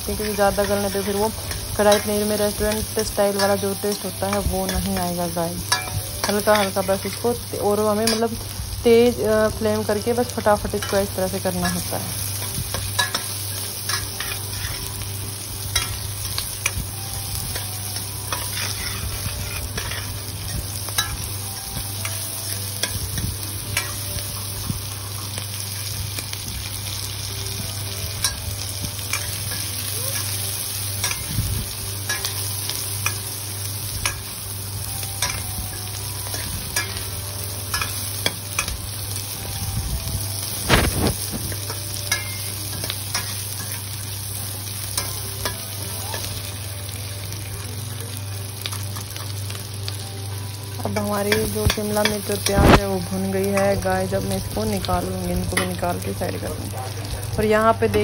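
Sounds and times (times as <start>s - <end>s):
vegetables sizzling in oil: 0.0s - 58.0s
metal spatula scraping pan: 10.8s - 15.0s, 18.0s - 21.3s.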